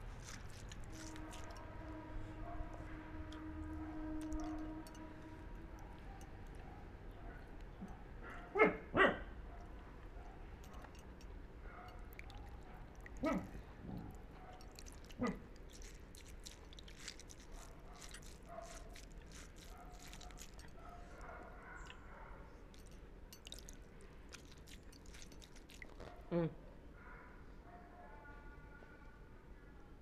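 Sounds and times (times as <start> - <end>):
dog barking: 2.4 - 2.9, 5.8 - 11.0, 12.7 - 13.6, 14.4 - 15.4, 18.0 - 22.5.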